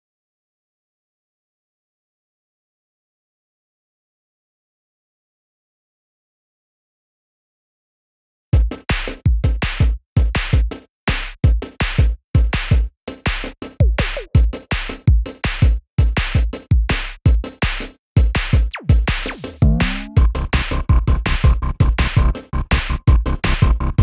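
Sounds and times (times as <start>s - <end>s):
electronic music with drum beat: 8.6s - 24.0s.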